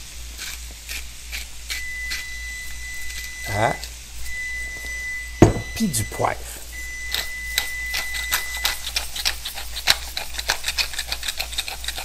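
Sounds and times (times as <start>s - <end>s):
pepper mill grinding: 0.0s - 4.4s, 7.0s - 12.0s.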